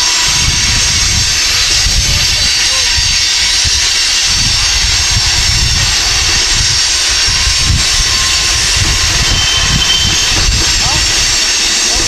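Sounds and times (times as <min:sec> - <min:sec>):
freight train rolling past: 0:00.0 - 0:12.0.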